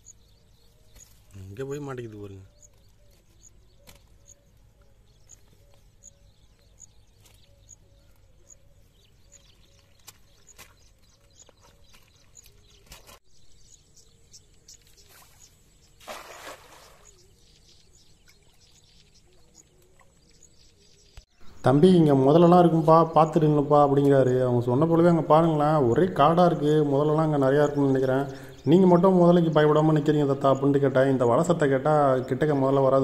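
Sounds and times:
birds calling: 0.0 - 33.0
rustle and clicks of a net: 9.8 - 13.2
net splashing into water: 16.0 - 17.1.

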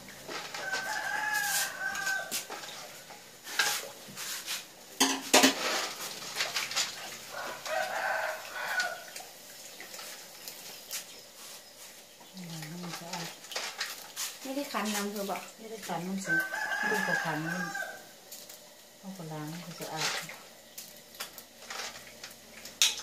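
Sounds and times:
rooster crowing: 0.5 - 2.5, 7.3 - 9.2, 16.2 - 18.2.

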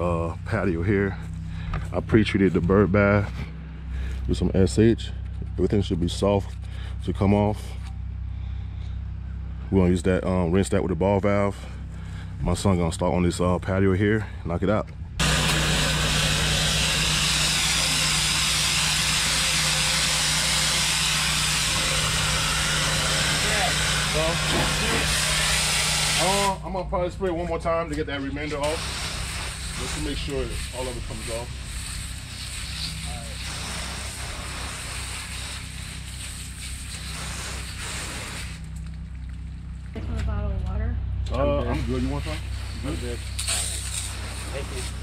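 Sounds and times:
engine humming: 0.0 - 33.4, 38.5 - 42.6
pressure washer spray hissing: 15.2 - 26.6, 28.6 - 38.8, 41.8 - 45.0.

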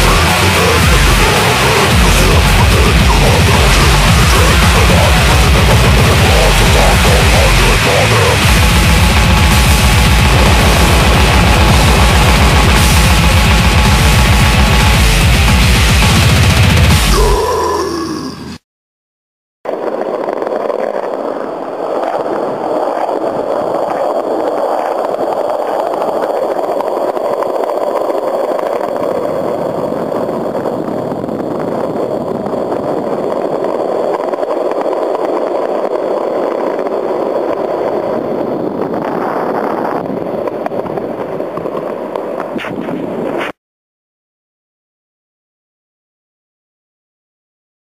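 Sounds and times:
skateboard wheels rolling on pavement: 19.7 - 43.6.

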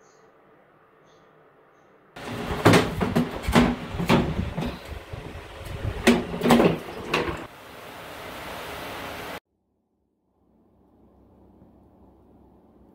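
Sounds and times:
plastic slats knocking and clattering: 2.2 - 7.5.

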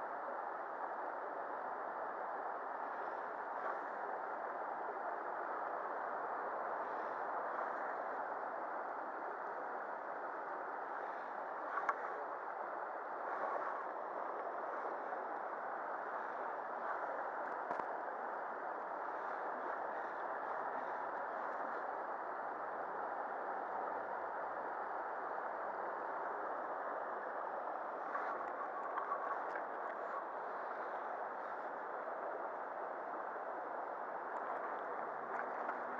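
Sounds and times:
faint small clicks: 11.7 - 12.1, 17.4 - 17.9, 28.1 - 30.0.

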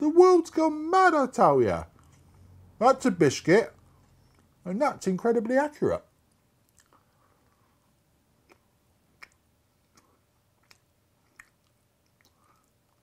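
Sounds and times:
chewing with wet mouth clicks: 6.3 - 7.6, 8.4 - 13.0.

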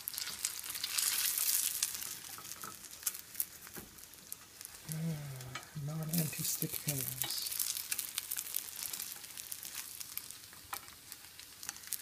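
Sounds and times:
food sizzling in hot oil: 0.0 - 12.0
man talking: 4.9 - 7.5.

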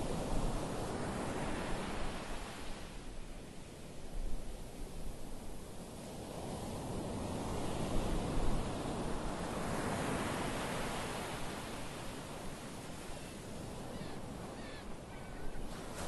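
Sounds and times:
ocean surf on sandy beach: 0.0 - 16.0.

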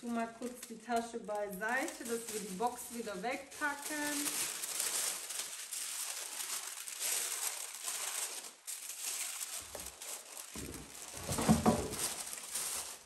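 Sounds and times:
paper rustling and crinkling: 0.0 - 13.0
cardboard box knocking: 10.6 - 12.2.

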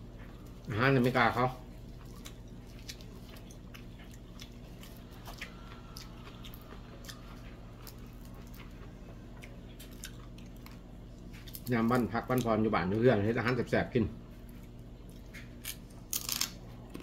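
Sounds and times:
person chewing food: 0.0 - 12.6
steady low hum: 0.0 - 17.0.

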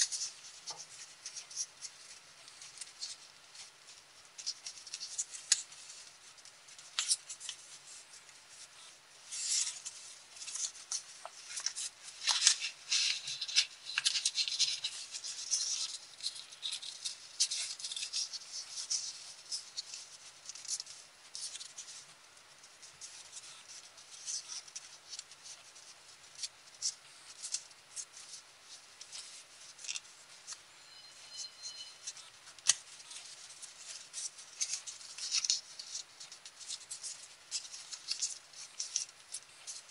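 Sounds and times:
paper crinkling and rustling: 0.0 - 39.9.

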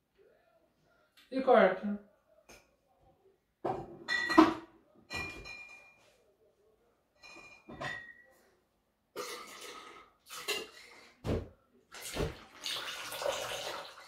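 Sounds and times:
liquid pouring into metal tin: 12.0 - 14.0.

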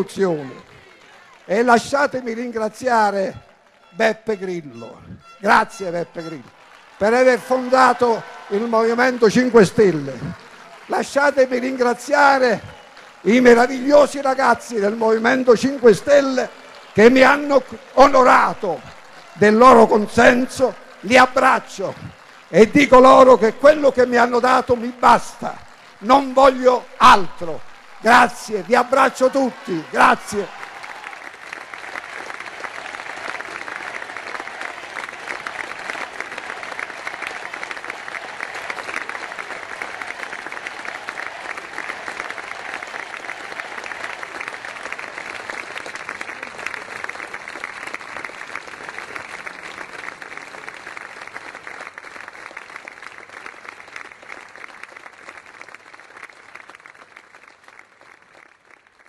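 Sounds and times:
large crowd applauding: 0.0 - 59.0.

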